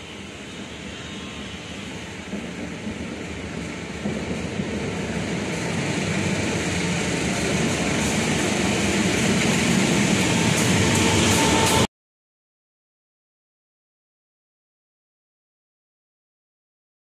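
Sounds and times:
diesel locomotive engine: 0.0 - 11.9
train rumbling on rails: 0.0 - 11.9.

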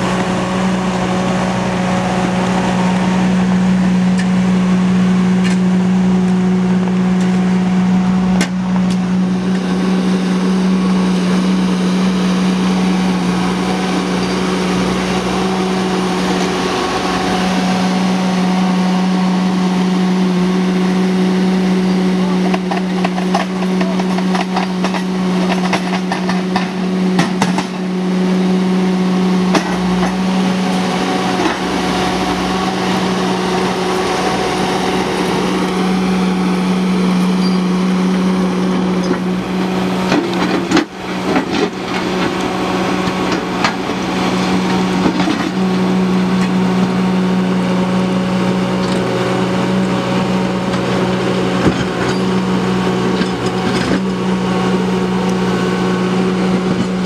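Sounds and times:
skid steer engine under load: 0.0 - 57.0.

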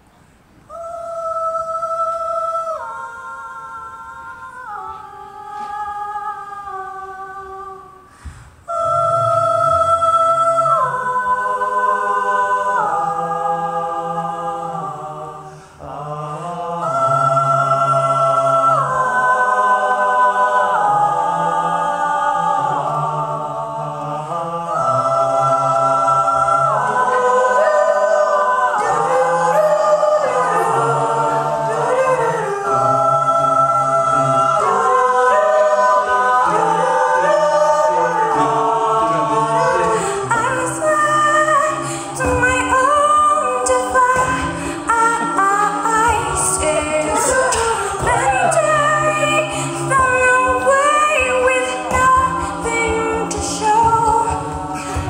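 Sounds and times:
a cappella group singing chords: 0.0 - 55.0.

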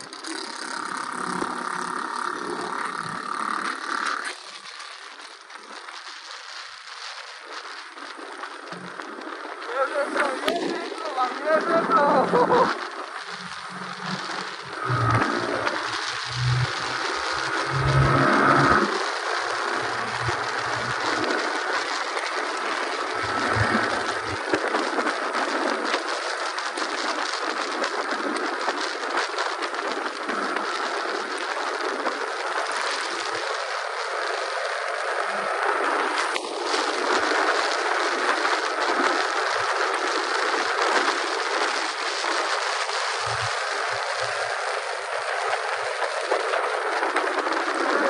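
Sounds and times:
tyre hiss on wet road: 0.0 - 48.0
wind rushing: 9.7 - 26.2.

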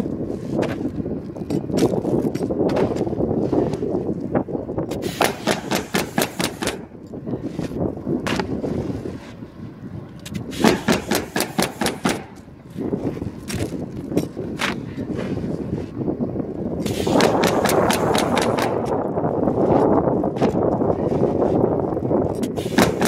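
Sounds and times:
wind rumbling on microphone: 0.0 - 23.0
nail gun firing: 4.9 - 6.8, 10.3 - 12.4, 16.8 - 18.9, 22.5 - 23.0.

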